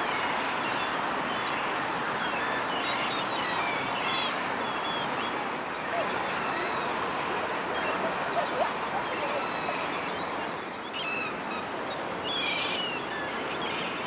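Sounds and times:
small birds chirping: 0:02.2 - 0:14.0
crowd talking: 0:07.8 - 0:10.5.

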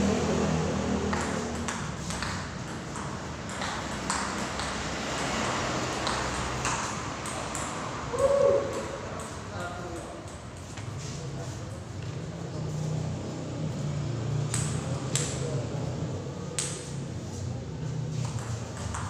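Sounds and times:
table tennis ball clicking: 0:01.1 - 0:05.4.

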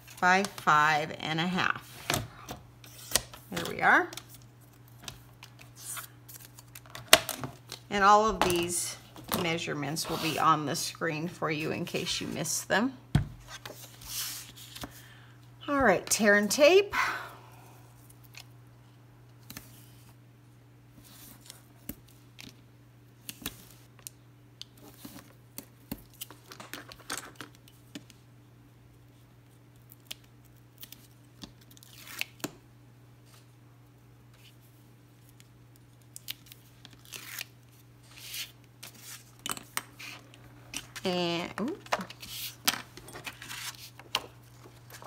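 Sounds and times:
tape tearing: 0:31.7 - 0:32.4, 0:36.2 - 0:37.5.

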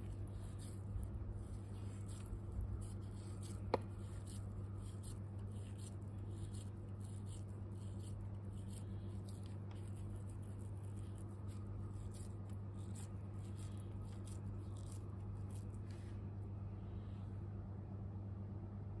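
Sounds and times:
hands crackling paste in bowl: 0:00.0 - 0:15.9
steady low hum: 0:00.0 - 0:19.0.

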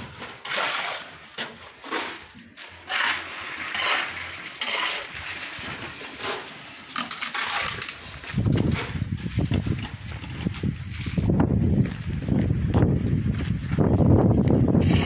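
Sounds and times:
wet concrete slopping from buckets: 0:00.0 - 0:11.2.

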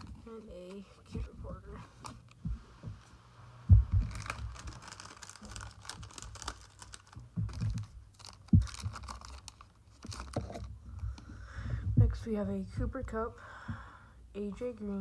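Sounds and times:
foil packs crinkling: 0:04.0 - 0:10.8.

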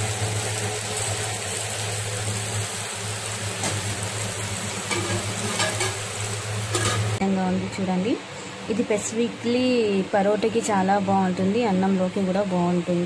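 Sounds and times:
curry sizzling in a pot: 0:00.0 - 0:07.2
metal utensils clinking on pot: 0:04.9 - 0:06.0, 0:06.7 - 0:07.1.

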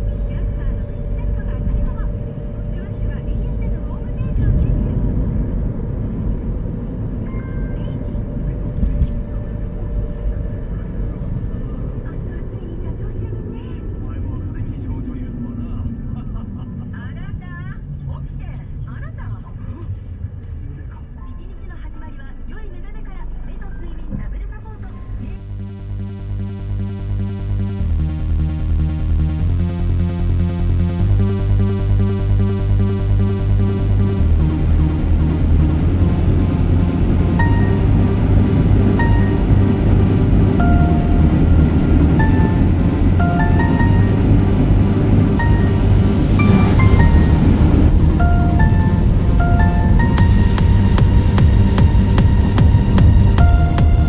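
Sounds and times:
electronic music with pulsing beat: 0:24.8 - 0:54.0.

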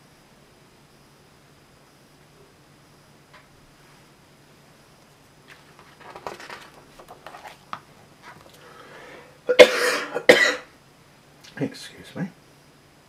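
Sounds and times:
paper pages rustling: 0:05.4 - 0:08.6
loud cough: 0:09.5 - 0:10.7.

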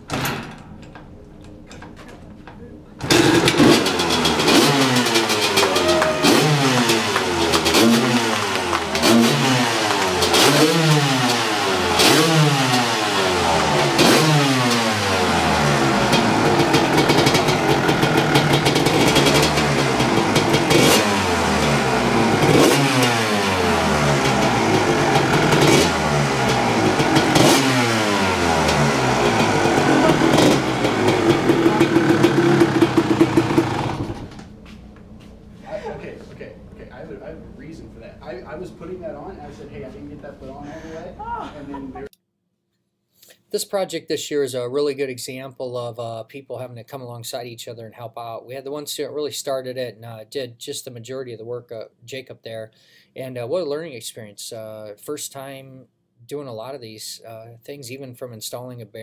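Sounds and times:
dirt bike engine revving: 0:03.0 - 0:34.4.

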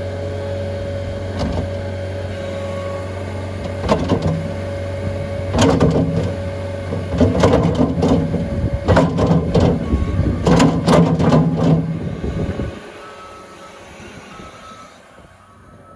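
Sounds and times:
loader engine running: 0:00.0 - 0:15.9
bucket rattling and clanking: 0:05.6 - 0:11.9.

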